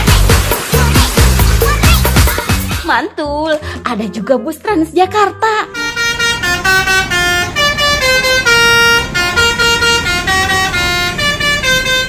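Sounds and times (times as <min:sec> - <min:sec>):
bus air horn melody: 0:05.6 - 0:12.0.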